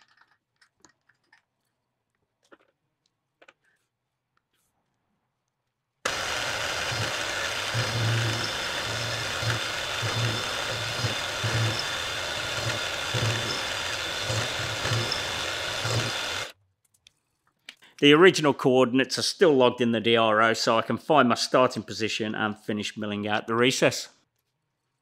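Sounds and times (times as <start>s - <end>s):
milling machine cutting metal: 6.1s - 16.5s.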